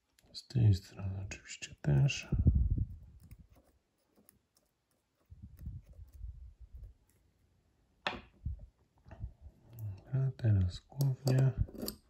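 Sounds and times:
soft low rumble: 0:02.3 - 0:03.4.

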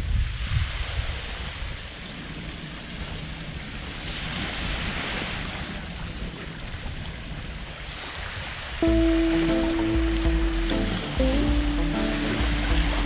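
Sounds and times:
wind rumbling on microphone: 0:00.0 - 0:08.8
waves washing on a beach: 0:00.0 - 0:13.0.

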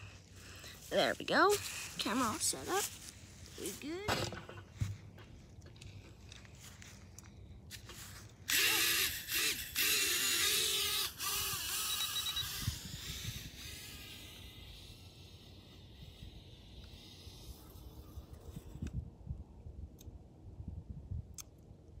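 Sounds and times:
toy drone motors buzzing: 0:00.0 - 0:03.0, 0:08.4 - 0:19.0.

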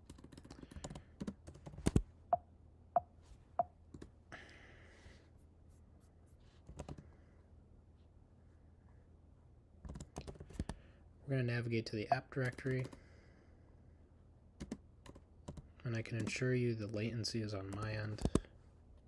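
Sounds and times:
computer keyboard typing: 0:00.0 - 0:02.0, 0:06.7 - 0:07.0, 0:09.9 - 0:10.8, 0:14.6 - 0:16.4.

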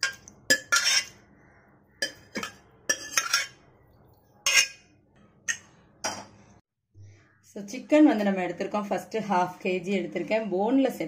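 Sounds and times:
metal ladle clinking and scraping: 0:00.0 - 0:01.3, 0:02.0 - 0:03.7, 0:04.3 - 0:04.9.

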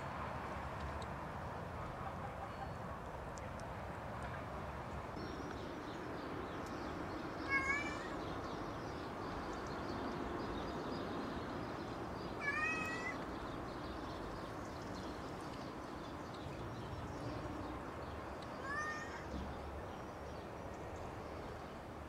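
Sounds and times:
cat meowing: 0:07.5 - 0:08.2, 0:12.4 - 0:13.2, 0:18.6 - 0:19.3.

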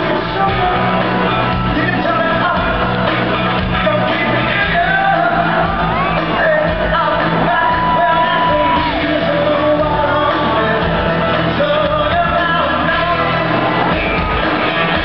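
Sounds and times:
bass guitar: 0:00.0 - 0:15.0
drums: 0:00.0 - 0:15.0
electric guitar: 0:00.0 - 0:15.0
man singing lead vocals: 0:00.0 - 0:15.0.

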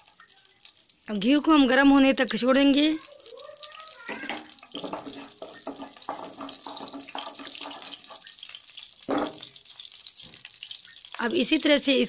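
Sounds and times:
ghee sizzling and crackling: 0:00.0 - 0:12.0
wooden spatula stirring: 0:04.4 - 0:08.4.

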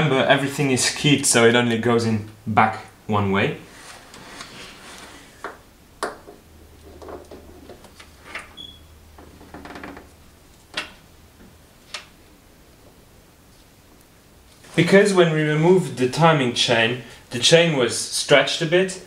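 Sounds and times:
soft handling rustle: 0:12.8 - 0:15.1.

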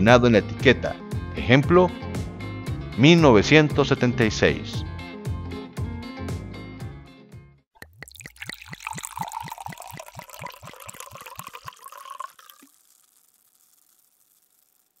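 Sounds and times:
wine glugging into glass: 0:07.8 - 0:13.9.

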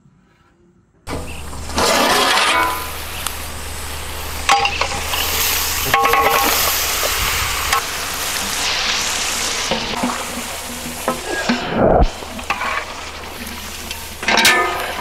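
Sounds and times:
metal vessels clinking: 0:01.1 - 0:15.0.

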